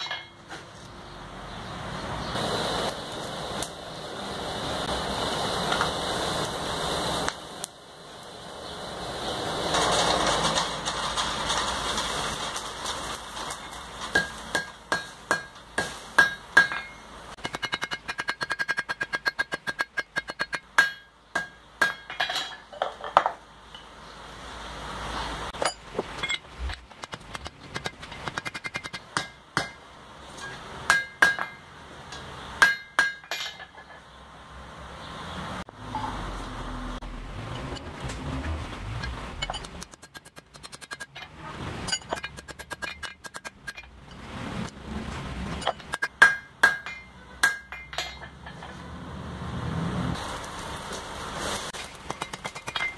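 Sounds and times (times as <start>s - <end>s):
hammer striking metal on anvil: 14.1s - 22.7s, 27.7s - 34.0s, 45.6s - 48.8s.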